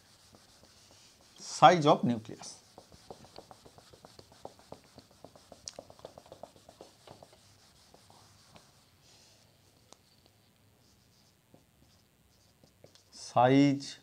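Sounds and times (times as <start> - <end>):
cloth rubbing a whiteboard: 0.0 - 9.8.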